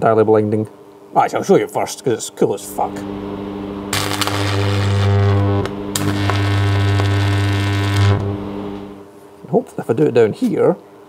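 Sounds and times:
transformer humming: 0:02.6 - 0:09.0
electric arc buzzing: 0:02.6 - 0:09.1.

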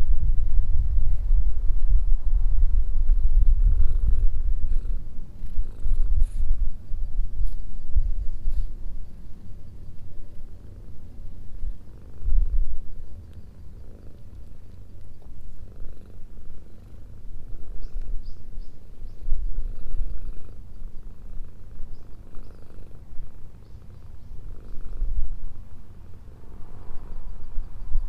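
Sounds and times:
cat purring: 0:00.0 - 0:25.7.

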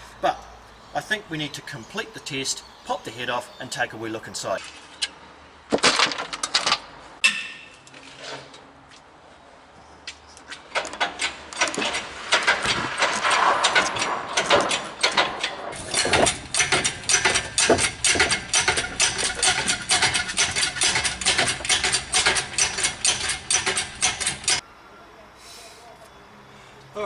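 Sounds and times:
chain hoist rattling: 0:10.7 - 0:24.6
ratchet handle clicking: 0:15.9 - 0:24.6.

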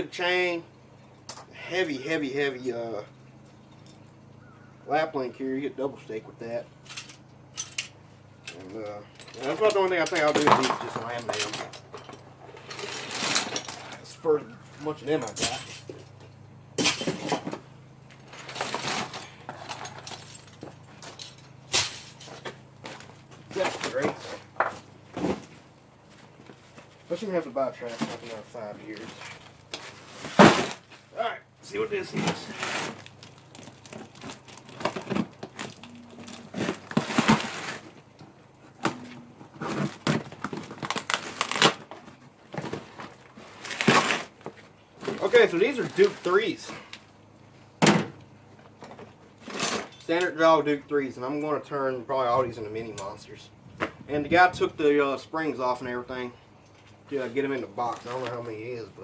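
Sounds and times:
metal traps and chains clinking: 0:06.8 - 0:14.2, 0:14.8 - 0:16.1, 0:16.8 - 0:17.4, 0:18.3 - 0:22.5
plastic bag tearing and crinkling: 0:39.7 - 0:41.9.

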